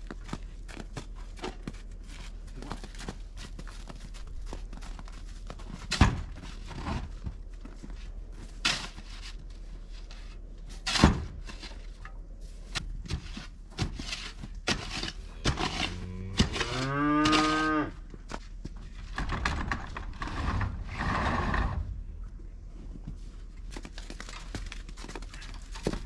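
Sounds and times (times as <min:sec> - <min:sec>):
digging knocks and scrapes: 0:00.2 - 0:22.0
calf mooing: 0:15.9 - 0:18.0.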